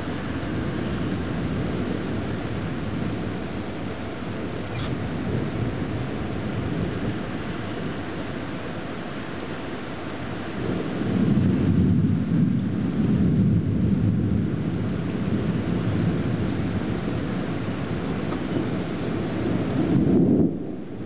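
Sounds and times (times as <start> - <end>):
thunder rumbling: 0.0 - 8.6, 10.4 - 21.0
steady rain: 0.0 - 21.0.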